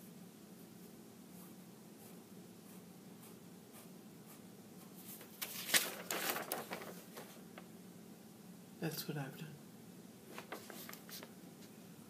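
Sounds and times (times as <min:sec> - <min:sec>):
pen scratching on paper: 0:01.3 - 0:05.2.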